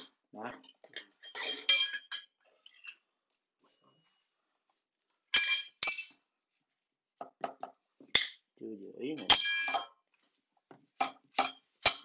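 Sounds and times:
hammer clinking on metal tools: 5.3 - 6.4, 9.1 - 10.0, 11.0 - 12.0.

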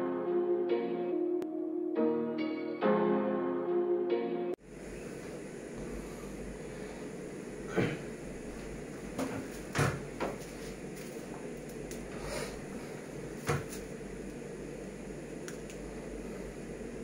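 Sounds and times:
low room hum: 4.6 - 17.0.

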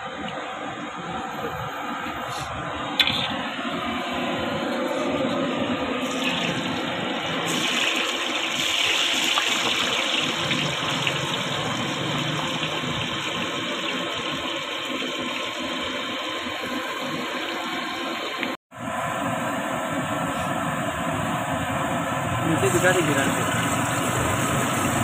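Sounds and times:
slices frying in hot oil: 6.0 - 18.5, 22.4 - 25.0.

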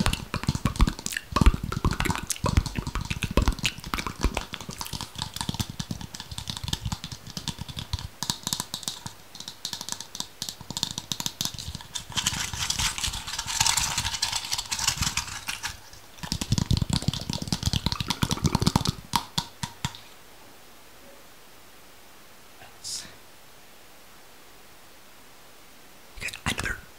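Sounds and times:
rapid tapping and clicks: 0.0 - 20.1.

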